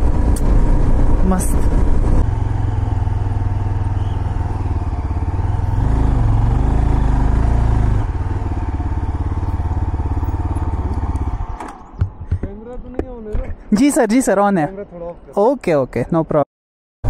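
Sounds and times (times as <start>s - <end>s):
motorcycle engine running: 0.0s - 12.2s.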